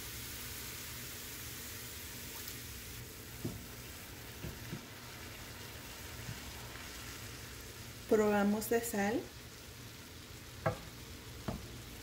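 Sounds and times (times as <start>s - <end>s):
rice sizzling in a pan: 0.0s - 12.0s
wooden spoon knocks: 10.6s - 11.7s.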